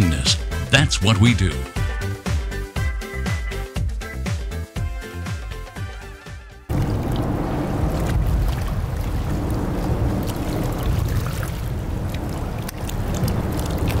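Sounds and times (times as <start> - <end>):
boat engine rumble: 6.7 - 14.0
water noise: 6.7 - 14.0
wind: 6.7 - 14.0.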